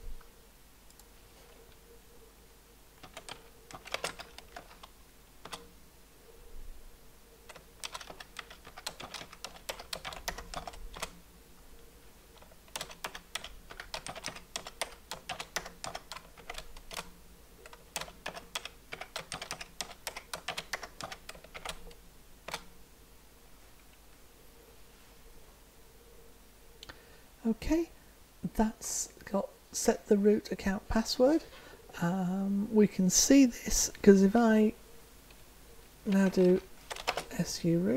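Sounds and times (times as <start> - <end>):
keyboard typing: 3.0 - 5.7, 7.5 - 11.2, 12.4 - 22.7, 36.1 - 37.4.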